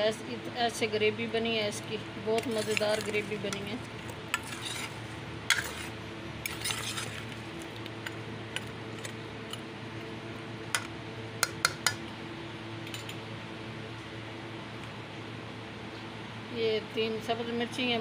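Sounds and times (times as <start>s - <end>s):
metal spoon scraping a pan: 2.4s - 3.7s, 4.3s - 7.4s.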